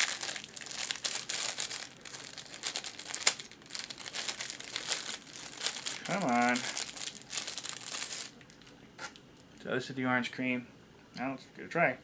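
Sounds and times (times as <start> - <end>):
plastic wrapper crinkling: 0.0 - 9.6.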